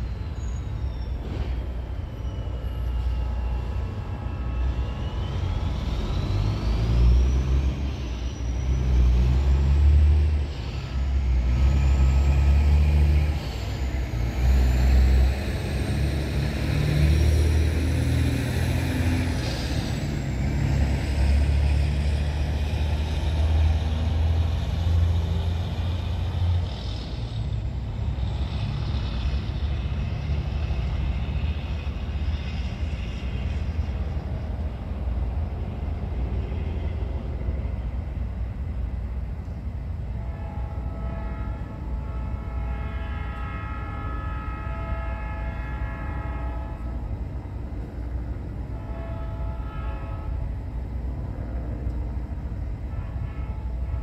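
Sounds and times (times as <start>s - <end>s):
diesel locomotive rumbling: 0.0s - 54.0s
train horn blasts: 40.0s - 51.2s, 52.6s - 54.0s.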